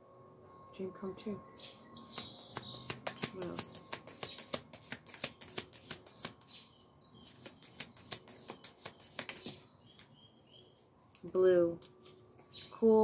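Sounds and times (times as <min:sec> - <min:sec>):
cards being shuffled: 0:02.1 - 0:06.6, 0:07.2 - 0:10.1.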